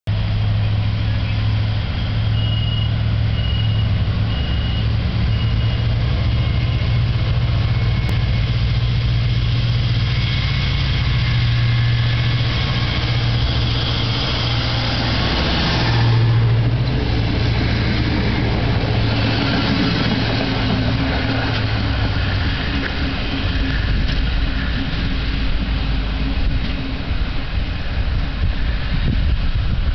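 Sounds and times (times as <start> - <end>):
diesel engine drone: 0.1 - 29.9.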